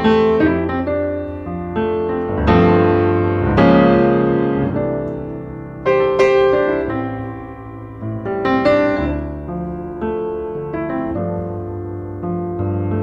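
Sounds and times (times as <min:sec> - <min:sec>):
slow piano chords: 0:00.0 - 0:13.0.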